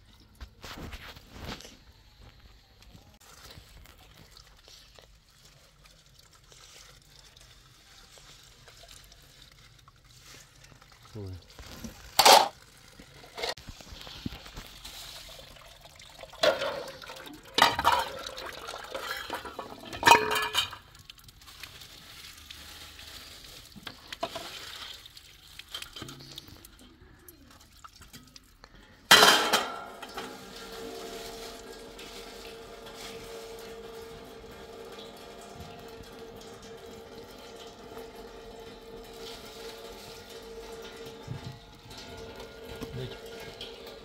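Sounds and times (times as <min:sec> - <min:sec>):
water running: 0:03.1 - 0:44.0
pots and dishes clattering: 0:12.0 - 0:12.6, 0:16.3 - 0:20.9, 0:29.1 - 0:44.0.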